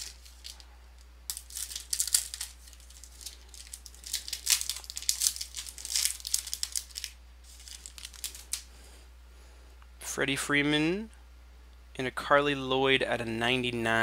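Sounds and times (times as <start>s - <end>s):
foil wrapper crinkling: 0.0s - 0.6s, 1.3s - 8.7s.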